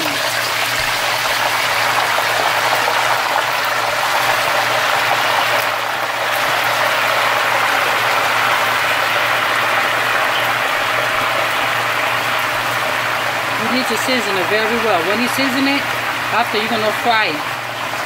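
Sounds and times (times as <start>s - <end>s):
oil sizzling and crackling: 0.0s - 18.0s.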